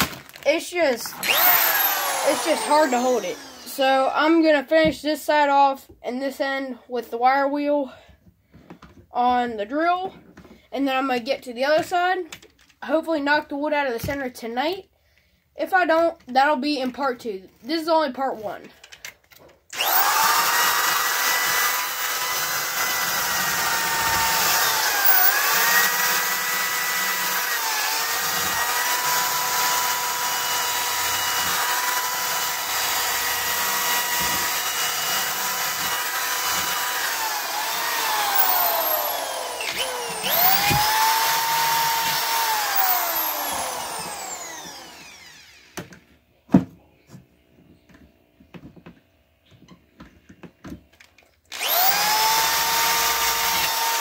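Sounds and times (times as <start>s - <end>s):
drill motor whine: 1.1s - 3.8s, 19.7s - 45.8s, 51.5s - 54.0s.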